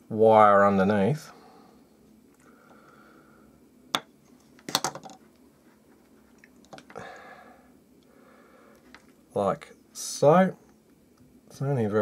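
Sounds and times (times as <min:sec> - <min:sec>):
knife handling clicks and knocks: 0:04.0 - 0:05.2.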